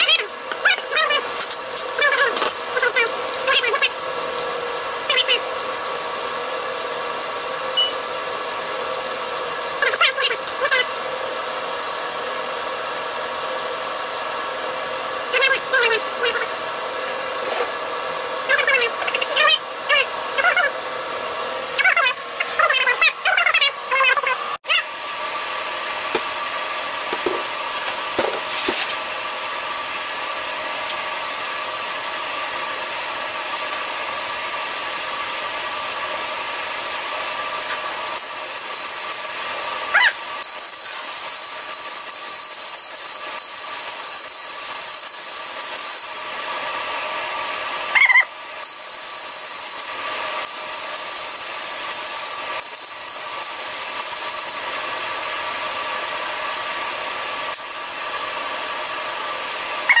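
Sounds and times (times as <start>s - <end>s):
spray gun hissing: 38.6s - 39.4s, 48.6s - 49.9s, 50.5s - 54.6s.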